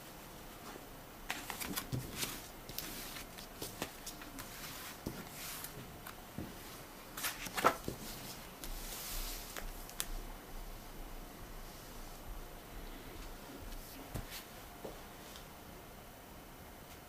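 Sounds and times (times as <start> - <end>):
paper rustling: 1.3 - 6.2, 7.2 - 10.2.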